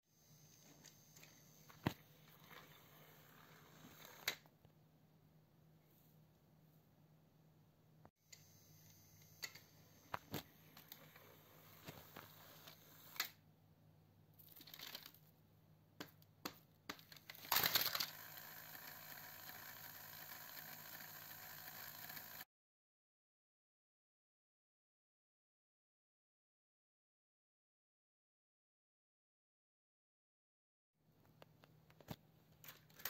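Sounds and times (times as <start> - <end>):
toy motor whirring: 0.5 - 4.4, 17.4 - 22.5
plastic clicks of toy trains: 16.4 - 22.4.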